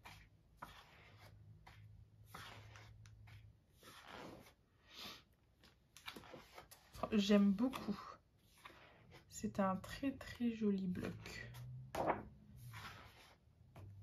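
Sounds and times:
paper sheets rustling: 11.9s - 13.4s.

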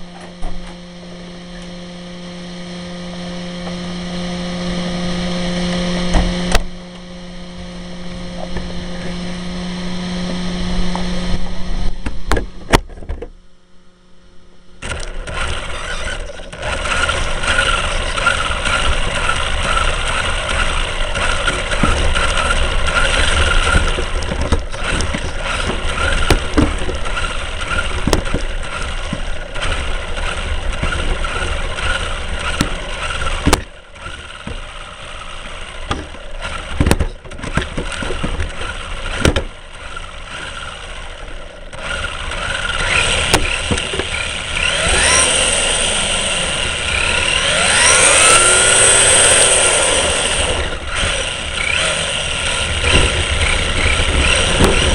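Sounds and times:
vehicle engine and road noise: 0.0s - 54.9s
sharp knocks: 36.8s - 38.5s, 39.2s - 39.5s.

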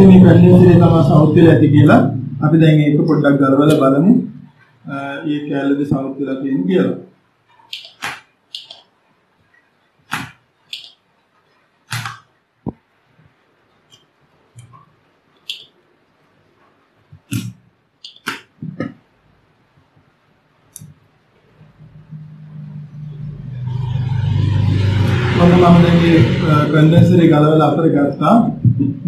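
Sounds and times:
knocks and clicks from handling tools: 7.7s - 8.8s.

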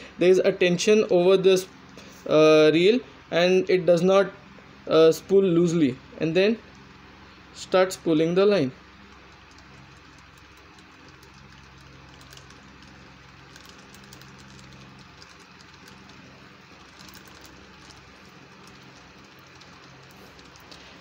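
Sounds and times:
fishing reel whirring: 9.2s - 21.0s.

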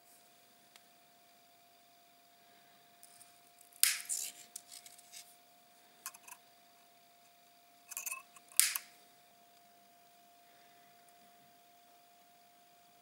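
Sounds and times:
side cutters snipping wire: 3.8s - 5.2s, 7.9s - 8.9s
cutter jaws clicking: 8.6s - 8.8s.

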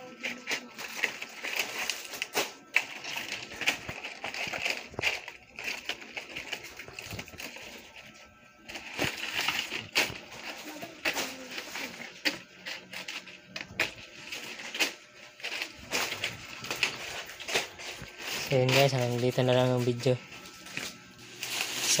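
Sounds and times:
palm leaves rustling: 13.8s - 22.0s.

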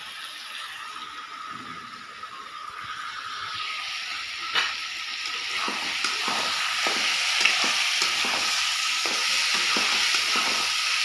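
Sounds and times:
food sizzling in a pan: 0.0s - 11.0s
metal spatula knocking on pan: 5.6s - 10.7s.

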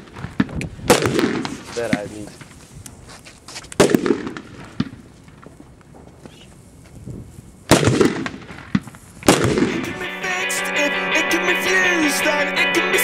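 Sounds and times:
firecracker bang: 0.0s - 2.5s, 3.8s - 5.6s, 7.7s - 10.0s
firecracker hissing: 5.4s - 10.2s
music: 9.6s - 13.0s.

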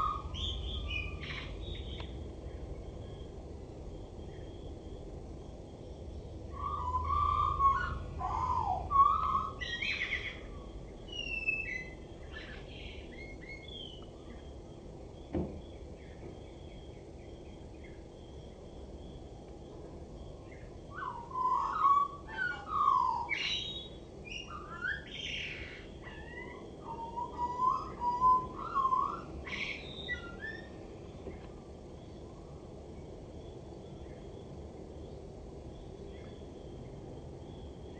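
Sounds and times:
blackbird singing: 0.0s - 2.2s, 6.6s - 14.5s, 20.4s - 30.8s.

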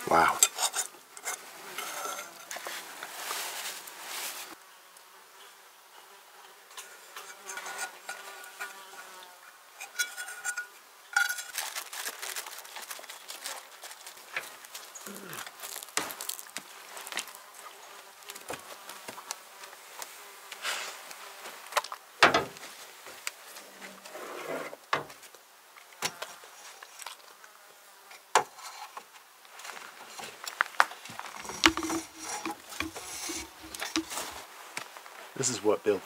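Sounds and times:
fly buzzing: 6.0s - 10.7s, 13.2s - 21.7s, 31.2s - 34.5s
sharp clicks and knocks: 31.3s - 34.4s.

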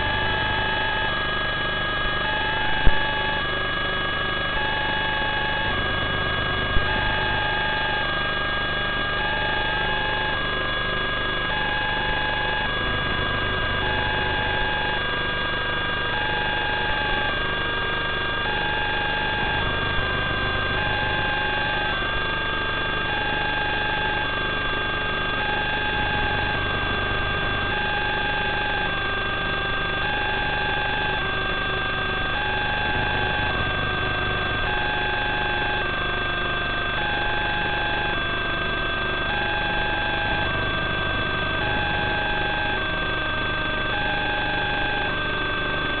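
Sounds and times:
electronic hiss and hum: 0.0s - 46.0s
fixed whining tones: 23.2s - 46.0s.

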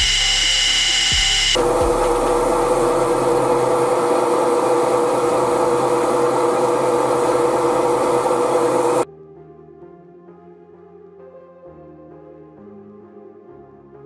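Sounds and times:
metal lathe whining: 0.0s - 9.0s.

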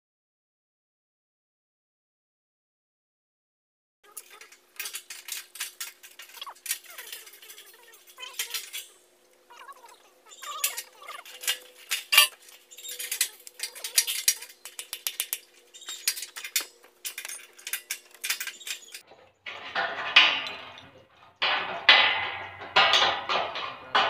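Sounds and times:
sharp metal clinks: 4.1s - 19.0s.

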